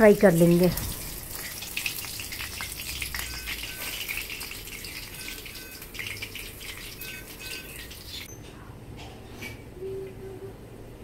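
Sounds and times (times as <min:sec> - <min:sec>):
fish deep-frying in oil: 0:00.0 - 0:08.3.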